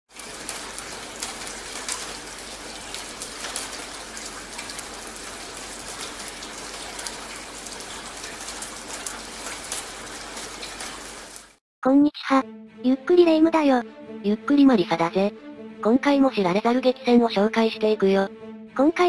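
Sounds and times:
rain hissing on a street: 0.1 - 11.6
raindrop splashes ticking: 0.1 - 11.6.

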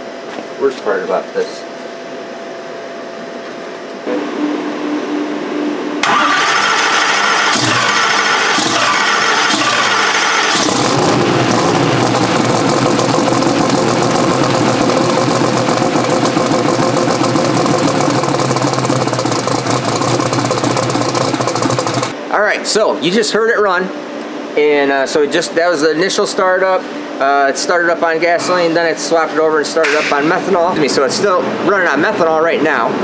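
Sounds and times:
race engine cranking: 6.0 - 22.2
race engine running: 6.0 - 22.2.

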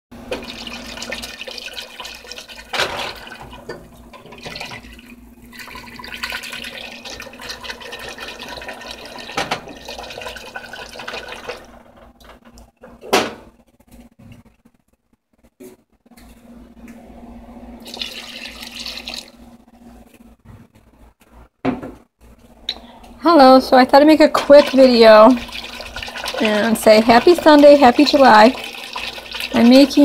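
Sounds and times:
whisk beating sauce in a pot: 24.5 - 30.0.

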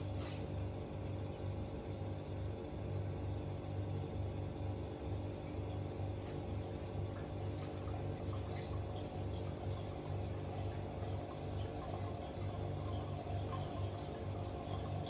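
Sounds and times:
aquarium pump humming: 0.0 - 15.0.

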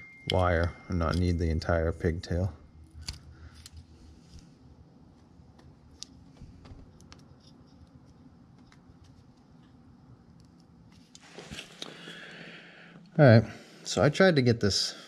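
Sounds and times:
low steady hum: 0.0 - 15.0
clicks and scrapes of metal tool: 1.0 - 1.4, 3.0 - 3.8.

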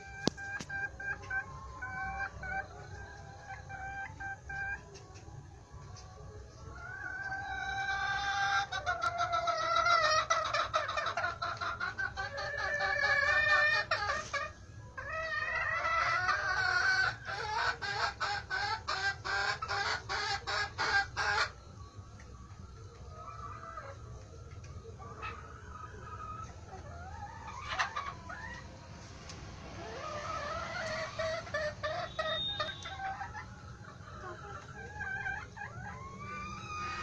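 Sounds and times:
young poultry calling: 6.8 - 21.6, 25.0 - 28.7, 29.8 - 37.0.

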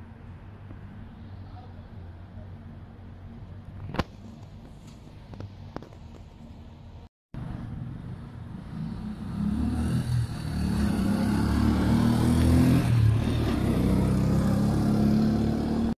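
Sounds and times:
motor tricycle engine revving: 8.4 - 15.9.

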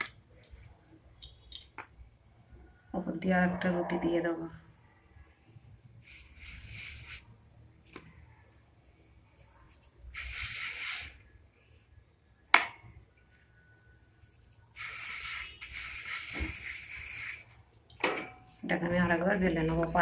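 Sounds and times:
hand rubbing dough on wooden board: 6.0 - 7.3, 14.2 - 17.5.

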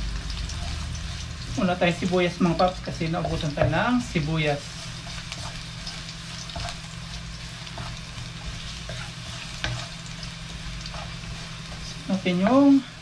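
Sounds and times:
garlic sizzling in oil: 0.0 - 13.0
spatula scraping pan: 0.5 - 13.0.

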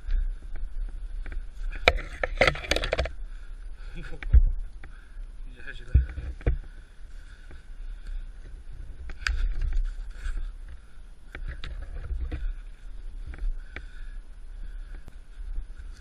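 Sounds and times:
wind rumble on microphone: 0.0 - 16.0
sharp clicks and knocks: 1.2 - 3.2.

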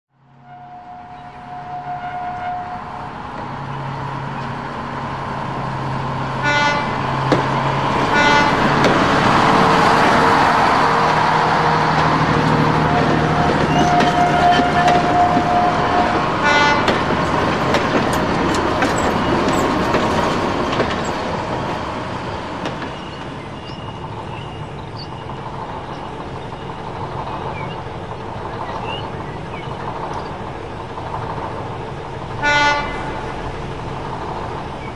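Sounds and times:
street traffic: 0.1 - 34.9
long car horn: 0.4 - 2.9, 6.4 - 7.0, 8.1 - 8.7, 12.8 - 17.0, 32.4 - 33.1
car horn toots: 13.0 - 17.0.

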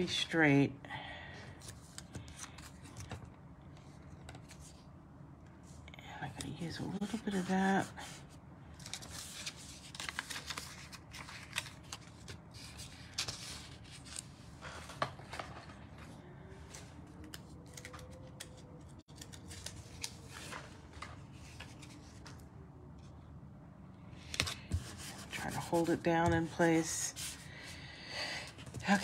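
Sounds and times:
paper and tape rustling: 6.9 - 16.1.

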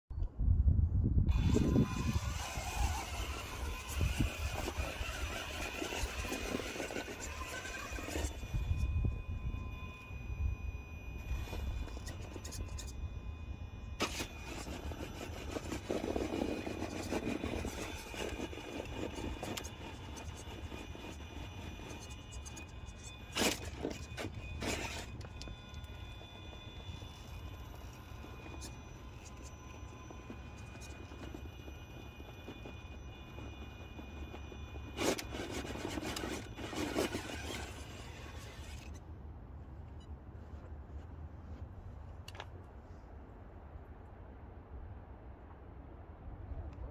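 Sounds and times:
grinding and scrabbling on rock: 1.3 - 9.0, 11.2 - 13.0, 14.0 - 39.0
electric motor whirring: 1.3 - 39.0.

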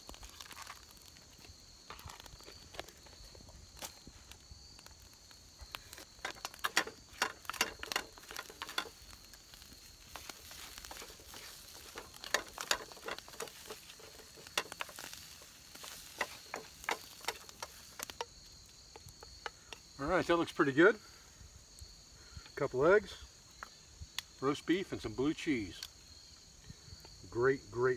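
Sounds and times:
faint frying sizzle: 0.0 - 22.5
spatula scraping a frying pan: 6.3 - 18.2.

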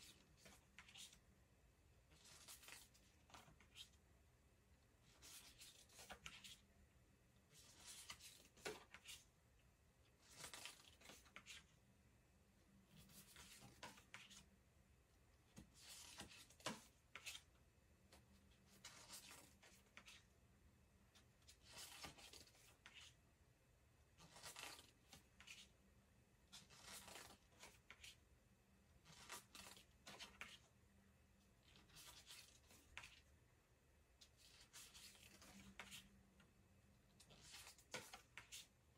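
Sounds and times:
cards swishing and slapping on table: 15.5 - 17.5, 26.6 - 28.2, 37.2 - 38.8
cards sliding: 26.6 - 28.1.

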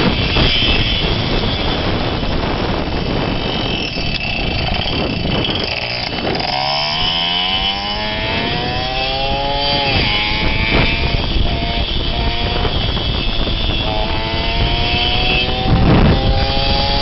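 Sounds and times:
loud rushing noise: 0.0 - 17.0
moped engine revving: 0.0 - 17.0.

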